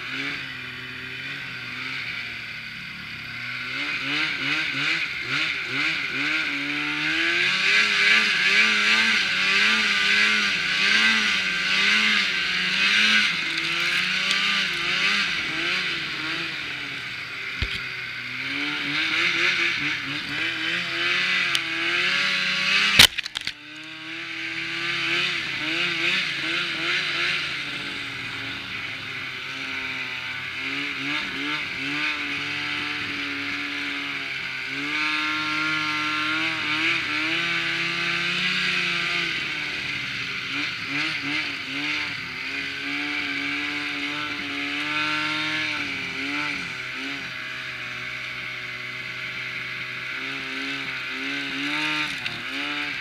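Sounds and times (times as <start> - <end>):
snowmobile engine revving: 0.0 - 53.0.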